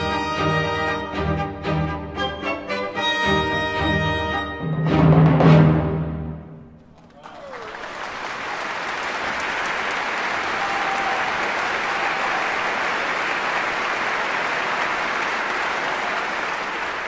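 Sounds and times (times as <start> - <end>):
audience applauding: 6.8 - 17.0.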